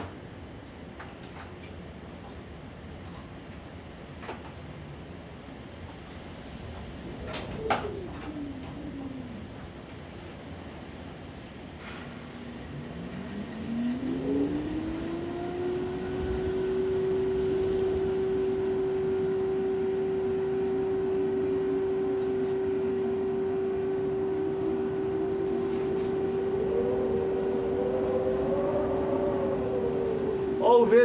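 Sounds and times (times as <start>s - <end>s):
storm wind howling: 6.1s - 31.0s
wavering wind tone: 6.6s - 31.0s
rush of wind noise: 24.2s - 31.0s.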